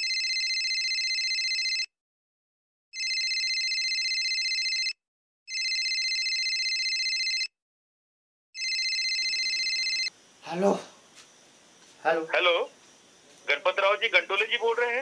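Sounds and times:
mobile phone ringing: 0.0 - 1.9, 3.0 - 7.5, 8.6 - 10.1.

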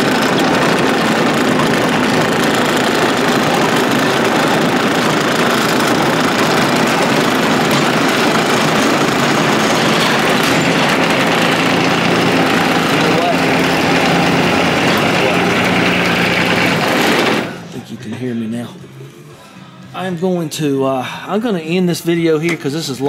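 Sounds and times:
tractor diesel engine running: 0.0 - 17.7.

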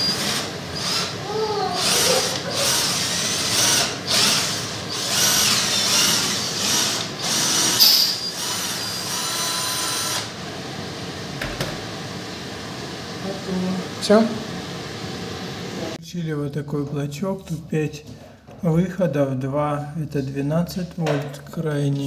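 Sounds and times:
cordless drill drilling: 0.0 - 10.4.

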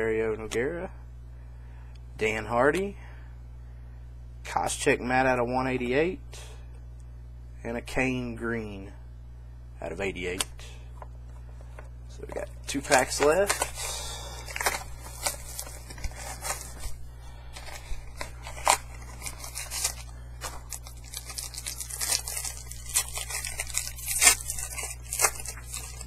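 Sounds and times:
steady low hum: 0.0 - 26.0
cards clicking and rustling: 11.7 - 26.0
wrapper tearing and crinkling: 12.8 - 26.0.

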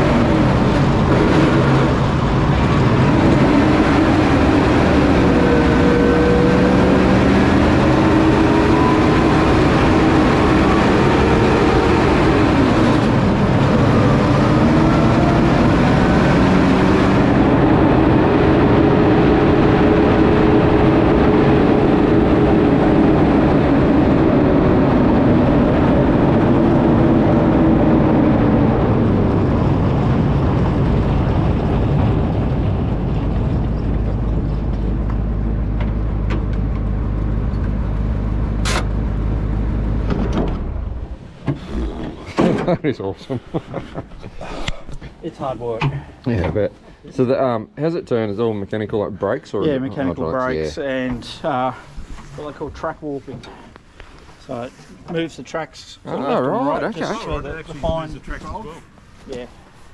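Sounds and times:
engine whine: 0.0 - 45.1
tracked vehicle engine: 0.0 - 46.9.

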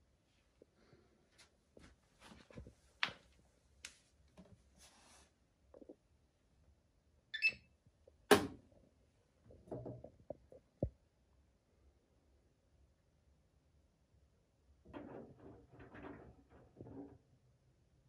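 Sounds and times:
washing machine knocks and clicks: 8.3 - 8.6.

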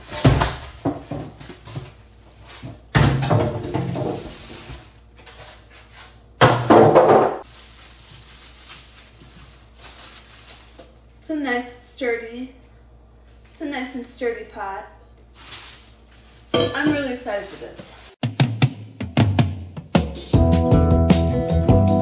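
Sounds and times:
foam packing scraping and knocking: 3.5 - 6.0.

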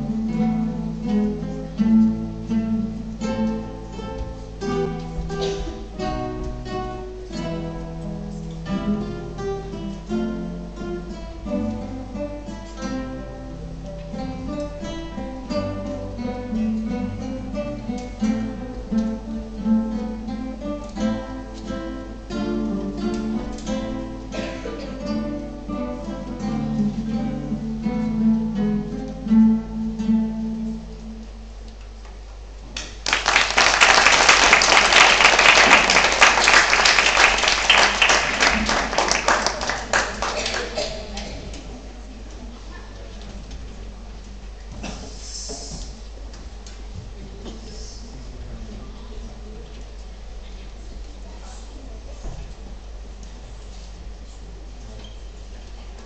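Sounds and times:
acoustic guitar ensemble playing: 0.0 - 45.0.

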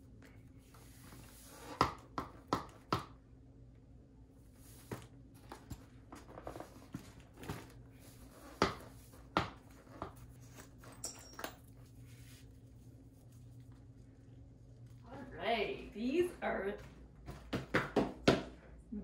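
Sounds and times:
boots knocking on wooden floor: 17.2 - 18.6.

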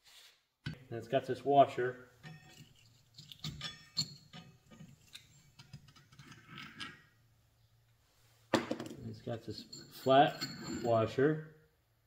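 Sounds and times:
metal parts clinking and scraping: 2.2 - 7.2, 8.9 - 11.2.

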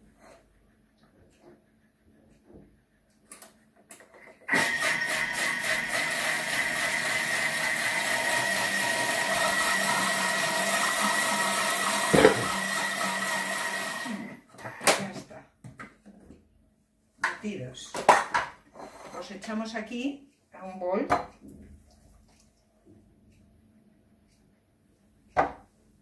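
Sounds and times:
food processor whining: 4.5 - 14.4.

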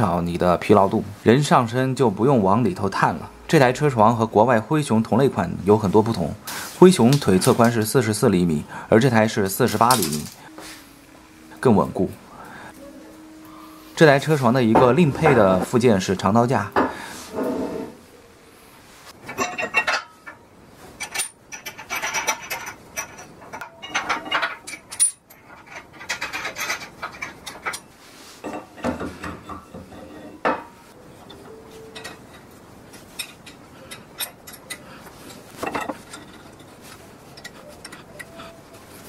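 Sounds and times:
metal arm scraping and sliding: 17.2 - 18.0
metal post clanking: 19.2 - 38.6.

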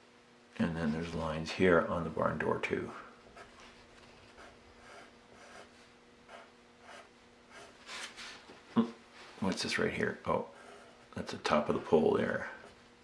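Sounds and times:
pencil scratching on paper: 3.3 - 8.1, 10.4 - 12.0.

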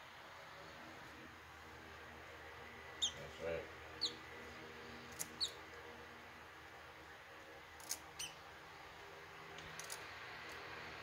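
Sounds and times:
bird chirping: 3.0 - 3.3, 4.0 - 4.2, 5.2 - 5.6, 7.9 - 8.4.

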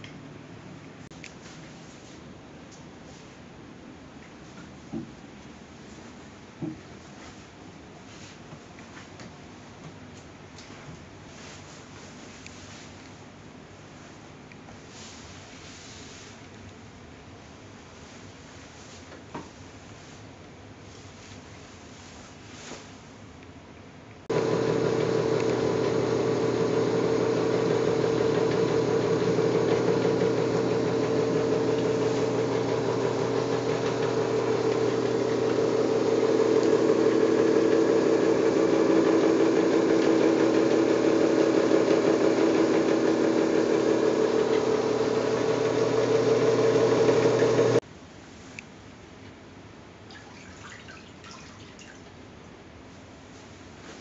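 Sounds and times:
drill press motor hum: 24.3 - 47.8.

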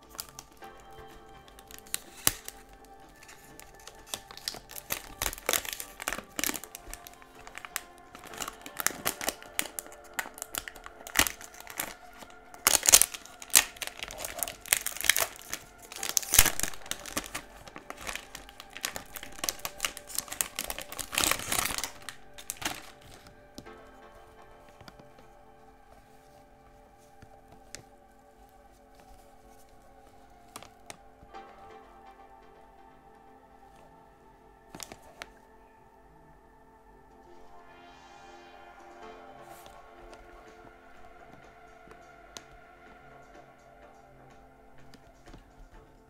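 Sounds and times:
plastic shrink wrap crinkling: 0.0 - 31.4, 34.7 - 35.5, 38.7 - 42.6, 44.8 - 46.0.

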